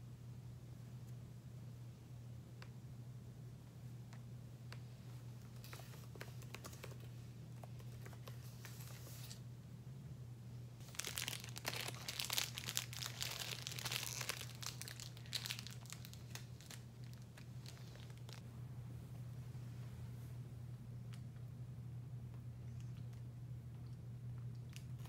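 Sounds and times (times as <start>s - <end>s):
steady low hum: 0.0s - 25.0s
packaging crinkling and rustling: 5.5s - 7.1s, 10.8s - 18.4s.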